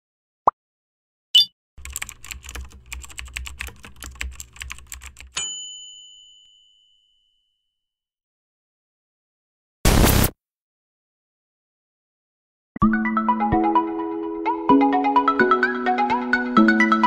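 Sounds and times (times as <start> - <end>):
rapid keyboard typing: 1.8 - 5.4
ringing ding: 5.4 - 7.6.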